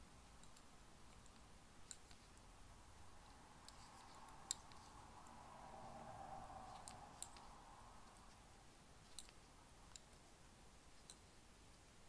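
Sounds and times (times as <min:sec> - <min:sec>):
knitting needles clicking: 0:00.2 - 0:02.5, 0:03.6 - 0:05.4, 0:06.7 - 0:08.3, 0:09.0 - 0:10.3, 0:11.0 - 0:11.3.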